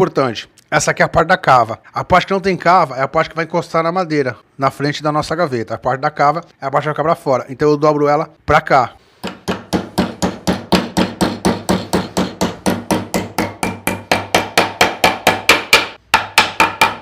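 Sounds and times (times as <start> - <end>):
hammer striking iron strip: 9.2 - 17.0.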